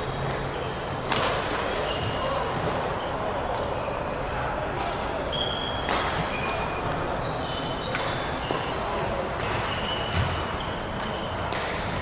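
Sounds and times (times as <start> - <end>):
racket striking shuttlecock: 1.1 - 1.6, 5.8 - 6.7, 9.3 - 10.4, 11.0 - 12.0.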